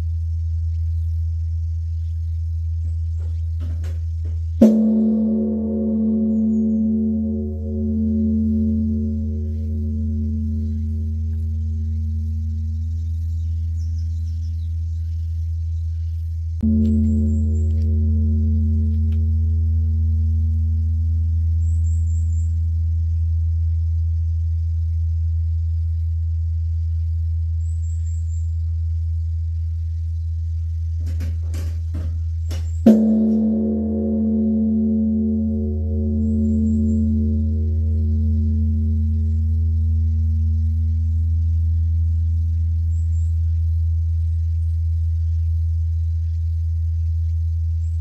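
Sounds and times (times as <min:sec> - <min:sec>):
deep temple bell humming: 0:03.2 - 0:14.7, 0:16.6 - 0:24.0, 0:31.1 - 0:45.9.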